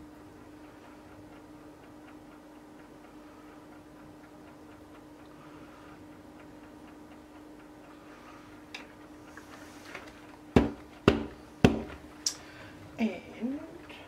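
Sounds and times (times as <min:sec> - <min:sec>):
steady low hum: 0:00.0 - 0:14.0
mould knocking against table: 0:10.6 - 0:12.0.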